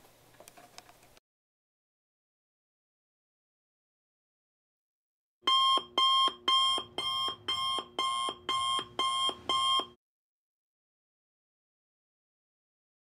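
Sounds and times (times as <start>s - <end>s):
electronic alarm beeps: 5.4s - 10.0s.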